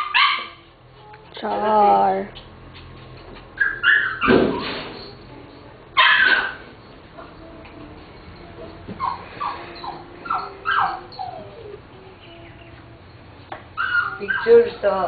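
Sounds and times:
small dog whimpering and yipping: 3.6s - 4.7s, 8.5s - 13.1s, 13.8s - 14.7s.

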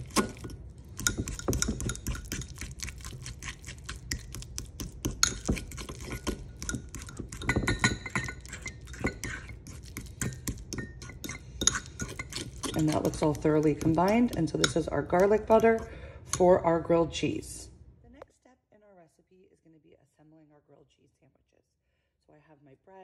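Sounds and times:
fork scraping ceramic bowl: 0.0s - 16.5s.

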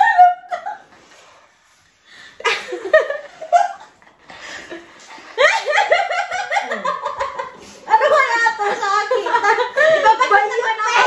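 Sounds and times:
women laughing and giggling: 0.0s - 1.2s, 2.4s - 11.0s
women speaking: 7.8s - 11.0s.

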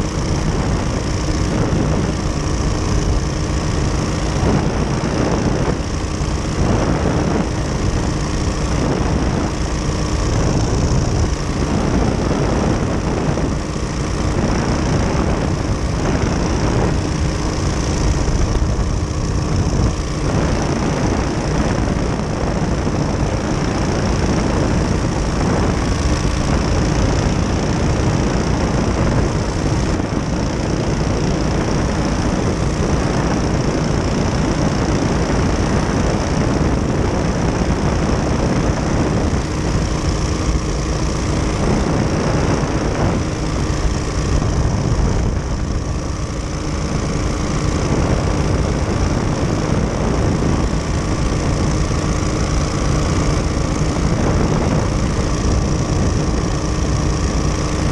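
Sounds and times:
engine and propeller running: 0.0s - 57.9s.

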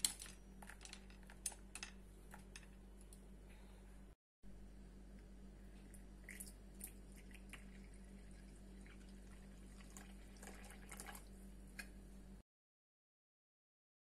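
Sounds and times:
steady low hum: 0.0s - 12.4s.

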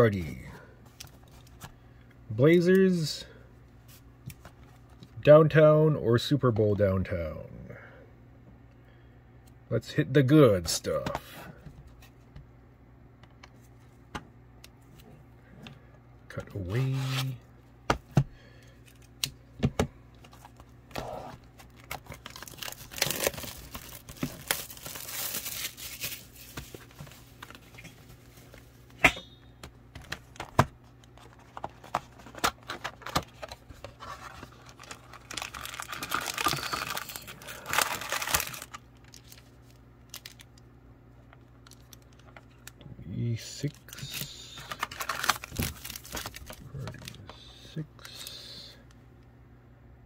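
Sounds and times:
wrapping tearing and crinkling: 21.0s - 27.8s, 31.2s - 40.6s, 43.6s - 47.3s.

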